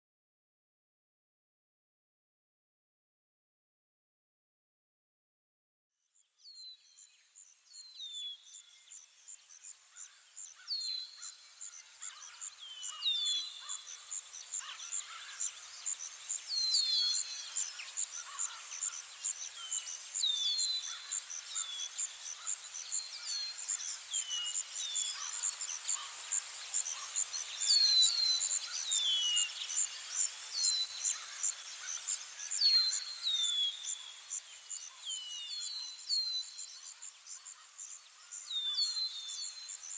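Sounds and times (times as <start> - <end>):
bird chirps: 6.2 - 39.9
high-pitched insect trill: 9.2 - 39.9.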